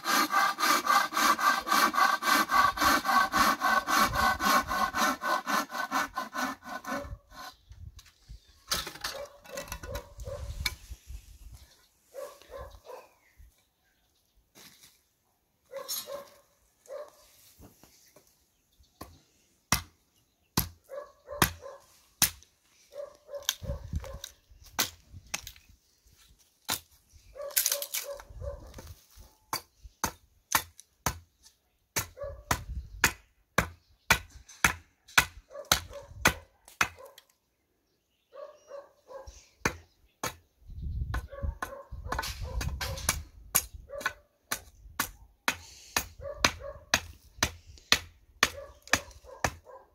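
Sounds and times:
dog barking: 0:09.1 - 0:10.5, 0:12.1 - 0:13.2, 0:15.7 - 0:17.3, 0:20.9 - 0:21.9, 0:22.9 - 0:24.3, 0:27.3 - 0:28.8, 0:32.2 - 0:32.5, 0:35.5 - 0:37.2, 0:38.3 - 0:39.4, 0:41.3 - 0:43.1, 0:43.9 - 0:44.3, 0:46.2 - 0:46.9, 0:48.5 - 0:49.9
hand axe chopping wood: 0:41.6 - 0:49.6.

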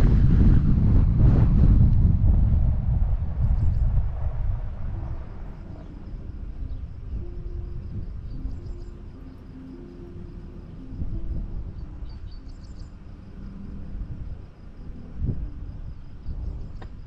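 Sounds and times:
low rumble: 0:00.0 - 0:17.0
insects chirring: 0:03.4 - 0:17.0
bird chirps: 0:05.6 - 0:11.0, 0:11.7 - 0:13.4.

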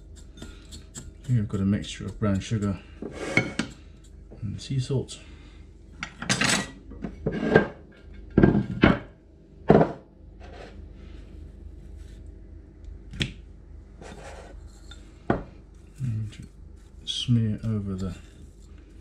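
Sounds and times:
dishes clattering on countertop: 0:03.0 - 0:03.8, 0:06.0 - 0:10.6.

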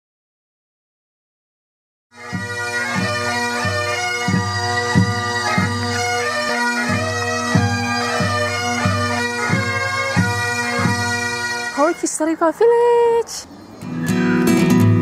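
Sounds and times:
drum beating: 0:02.2 - 0:12.0
bagpipes playing a tune: 0:02.2 - 0:12.5.

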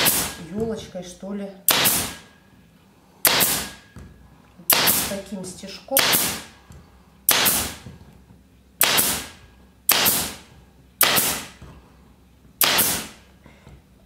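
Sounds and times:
upholstery stapler firing: 0:01.7 - 0:02.2, 0:07.3 - 0:07.8, 0:08.8 - 0:09.3, 0:09.9 - 0:10.4, 0:11.0 - 0:11.5, 0:12.6 - 0:13.2.

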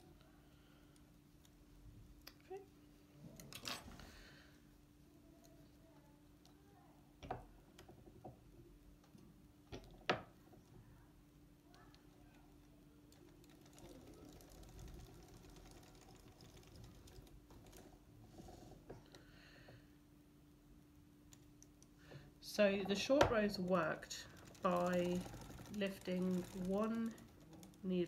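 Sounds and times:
faint steady hum: 0:00.0 - 0:28.0
fast light clicking of cranking: 0:13.1 - 0:17.8, 0:23.3 - 0:28.0.

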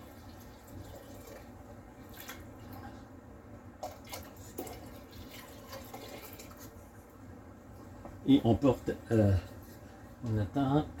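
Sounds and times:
water pouring into a pot: 0:00.0 - 0:03.0, 0:03.8 - 0:06.8.

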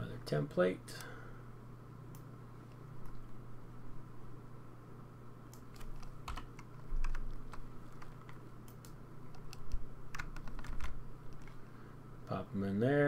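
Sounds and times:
steady low hum: 0:00.0 - 0:13.0
keyboard typing: 0:05.5 - 0:11.6.

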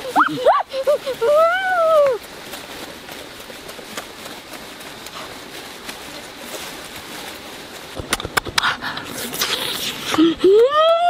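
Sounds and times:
wet chewing: 0:08.0 - 0:10.4.

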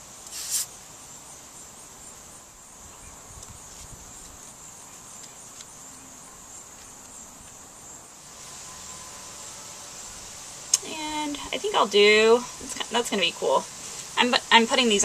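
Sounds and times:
insects chirping: 0:00.0 - 0:15.0
glue squirting from bottle: 0:00.3 - 0:00.8.

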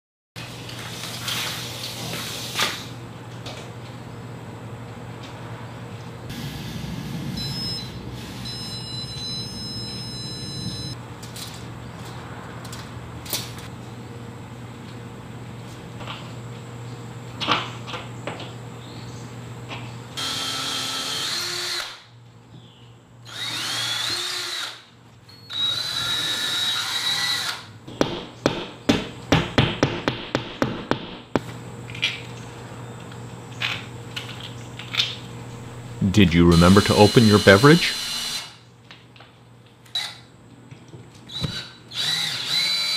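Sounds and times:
cordless drill motor whining: 0:20.2 - 0:22.0, 0:23.3 - 0:24.8, 0:25.5 - 0:27.6, 0:41.3 - 0:42.9.

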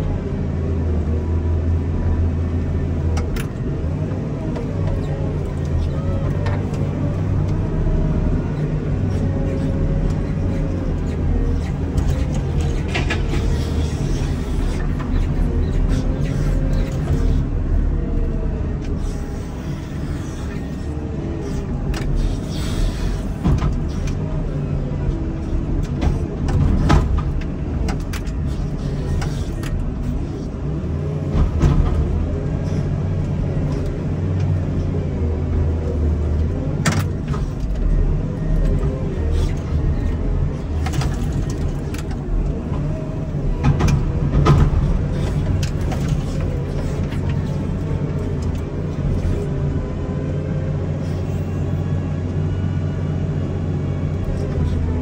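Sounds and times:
diesel engine under load: 0:00.0 - 0:55.0.

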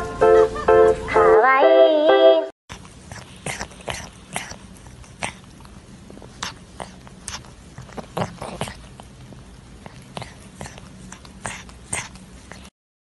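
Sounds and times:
kitten chewing food: 0:02.7 - 0:12.7.

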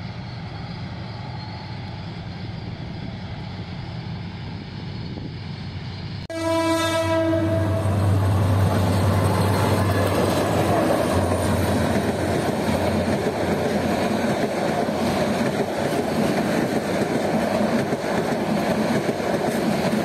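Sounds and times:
freight train running: 0:00.0 - 0:20.0
locomotive horn: 0:06.3 - 0:08.5
locomotive engine running loud: 0:07.4 - 0:19.9.

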